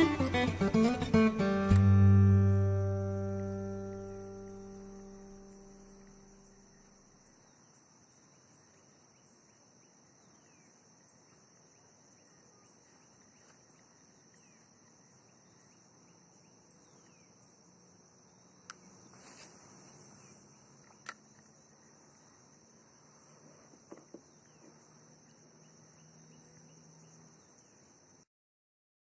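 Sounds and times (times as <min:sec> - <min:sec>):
faint insect chorus: 0:00.0 - 0:28.3
brief scuffing noise: 0:19.2 - 0:19.7.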